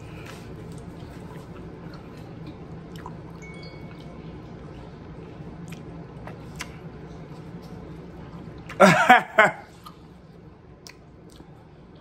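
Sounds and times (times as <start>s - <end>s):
wet chewing and sucking: 0.0s - 8.8s
steady low hum: 0.0s - 12.0s.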